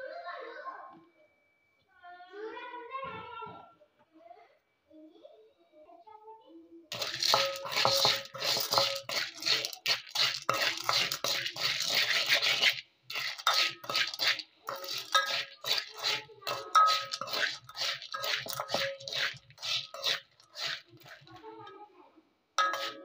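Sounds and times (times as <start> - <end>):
pot ringing metallically: 6.9 - 21.2, 22.6 - 23.0
popcorn kernels rattling: 6.9 - 21.4, 22.6 - 23.0
spoon scraping metal pot: 6.9 - 21.5, 22.6 - 23.0.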